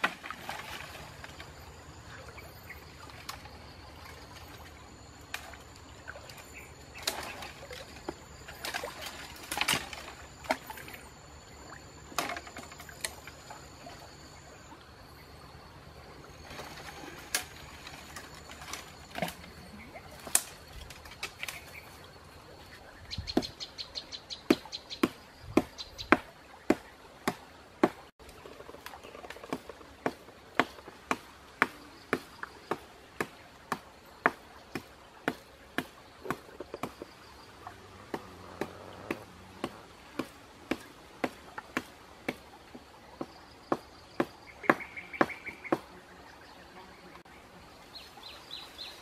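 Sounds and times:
twigs snapping and cracking: 20.2 - 21.8.

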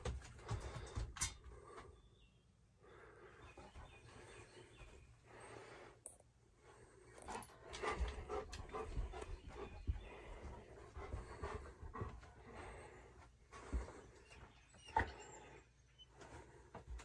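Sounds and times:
dog panting: 7.2 - 15.6.

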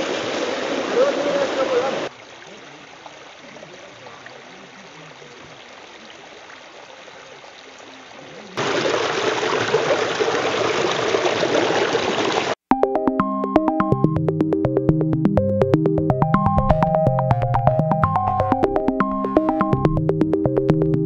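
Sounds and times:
water cascading over rocks: 0.0 - 12.6
electronic keyboard music: 12.6 - 21.0.

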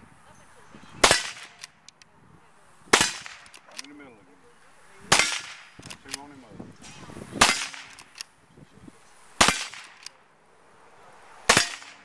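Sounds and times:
rifle shots: 1.0 - 1.8, 2.9 - 3.8, 5.1 - 6.2, 7.4 - 8.2, 9.4 - 10.1, 11.5 - 12.0.

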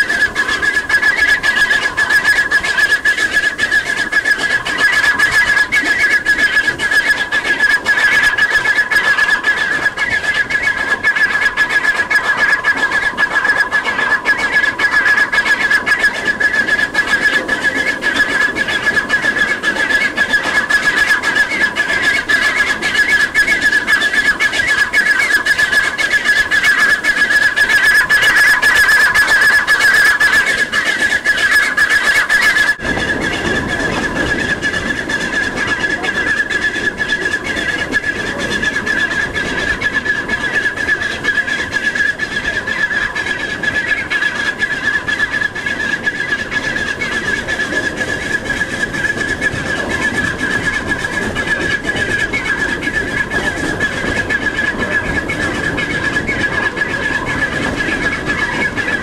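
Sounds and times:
high-pitched squeal: 0.0 - 59.0
steam locomotive working hard: 0.0 - 59.0.

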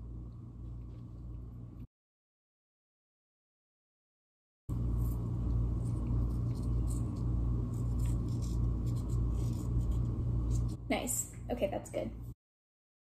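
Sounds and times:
steady low hum: 0.0 - 1.9, 4.7 - 12.4.

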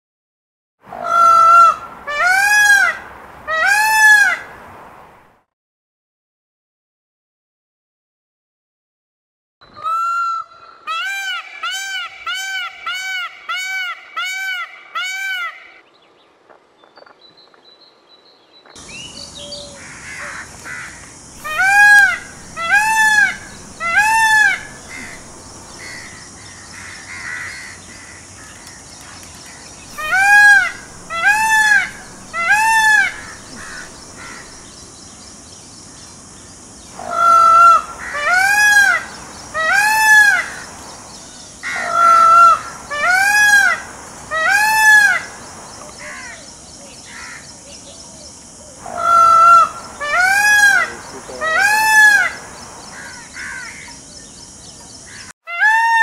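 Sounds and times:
peacock calling: 0.9 - 4.5, 9.7 - 15.8, 18.8 - 35.0, 36.9 - 56.0
steady high hiss: 18.8 - 55.3.

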